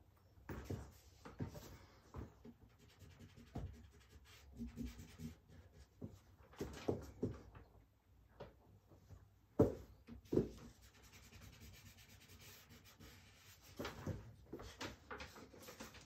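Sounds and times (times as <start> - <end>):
charcoal scratching on paper: 10.9 - 13.8.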